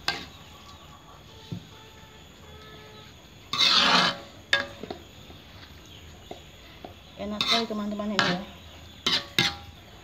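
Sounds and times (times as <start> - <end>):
ladle rasping in wok: 3.5 - 4.4.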